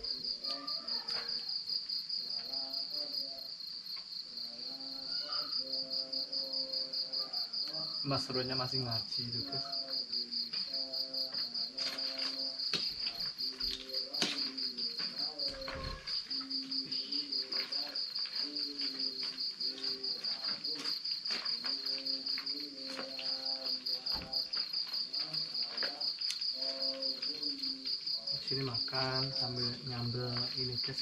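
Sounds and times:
crickets chirping: 0:00.0 - 0:31.0
man chanting over loudspeaker: 0:04.6 - 0:31.0.

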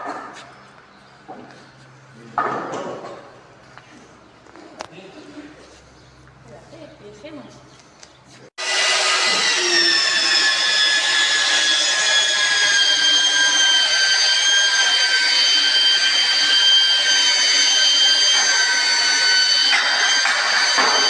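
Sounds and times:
electric hand planer whining: 0:08.6 - 0:21.0.

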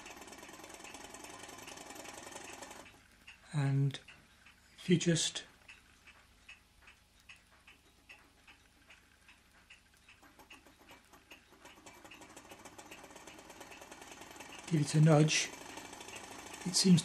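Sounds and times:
fast clicking: 0:00.0 - 0:03.4, 0:05.7 - 0:17.0
engine toy ticking: 0:00.0 - 0:04.6, 0:05.6 - 0:17.0.

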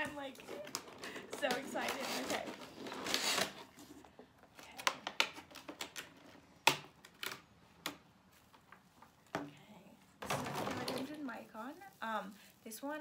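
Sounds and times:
packaging rustle: 0:00.1 - 0:06.4.

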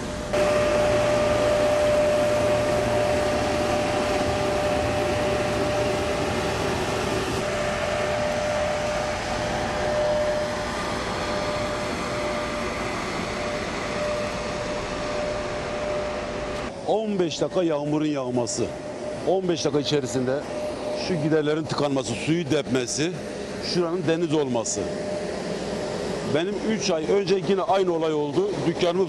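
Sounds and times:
motor whirring with whine: 0:00.0 - 0:29.0.

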